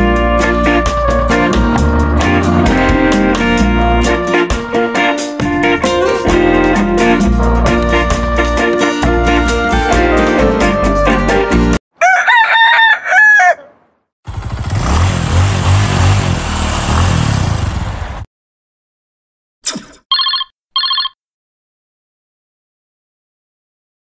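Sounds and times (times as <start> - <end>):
music: 0.0 - 11.8
rooster crowing: 12.0 - 13.9
short electronic beeps: 19.7 - 21.2.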